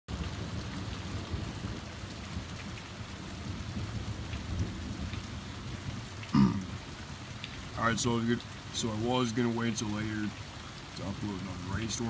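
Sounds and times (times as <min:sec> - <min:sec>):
thunder rumbling: 0:00.1 - 0:10.0
steady rain: 0:00.1 - 0:12.0.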